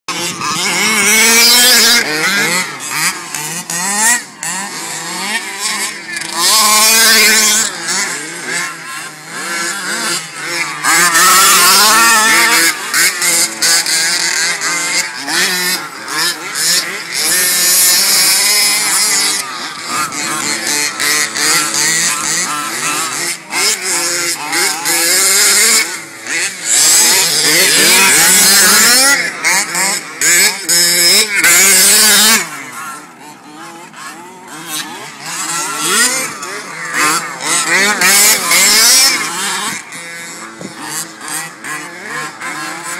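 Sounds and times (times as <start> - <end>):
small two-stroke engine revving: 0.0 - 42.9.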